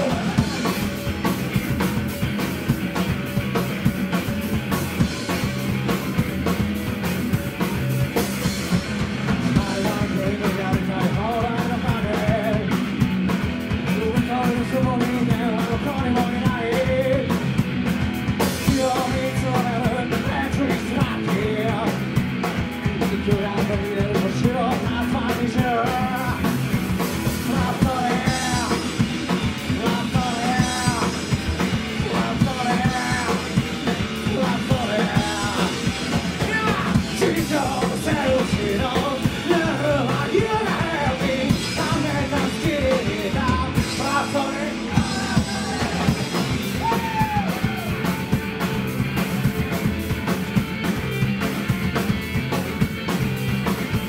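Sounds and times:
person singing: 0.0 - 0.9, 9.4 - 12.8, 18.6 - 22.0, 27.4 - 29.0, 29.7 - 48.3
live rock band playing: 0.0 - 54.0.

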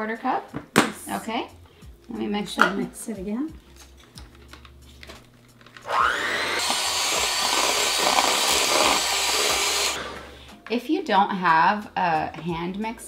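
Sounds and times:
electric hand mixer whining: 5.8 - 10.4.

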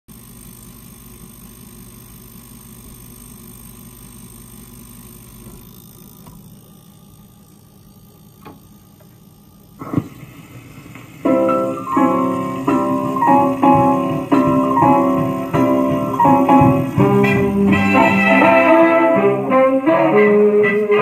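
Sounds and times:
phonograph hum and hiss: 0.1 - 21.0.

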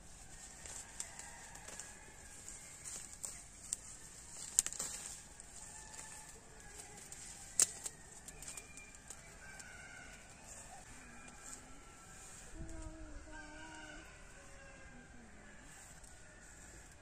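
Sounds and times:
wood fire snapping: 7.6 - 9.2.

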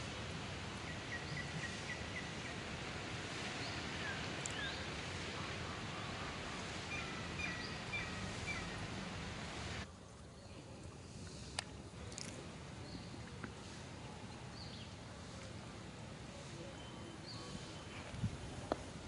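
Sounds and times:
outdoor background noise: 0.0 - 19.0
high chirping calls: 6.9 - 9.0.

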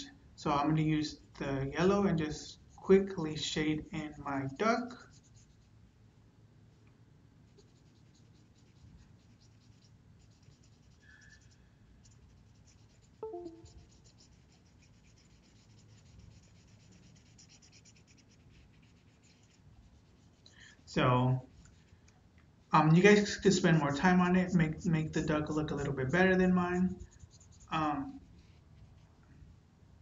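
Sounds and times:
marker scratching on paper: 5.0 - 5.7, 7.5 - 20.5, 24.0 - 29.1
brief pitched sound: 13.2 - 13.8.

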